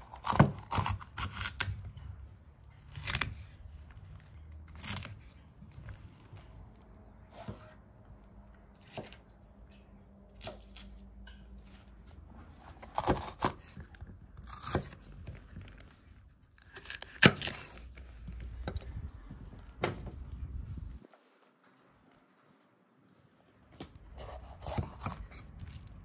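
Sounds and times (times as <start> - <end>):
knife cutting peppers: 0.0 - 2.0, 12.7 - 15.6, 24.1 - 25.9.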